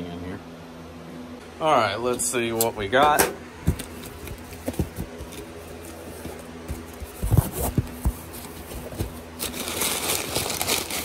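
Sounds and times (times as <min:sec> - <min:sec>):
cardboard box being opened: 0:03.8 - 0:11.0.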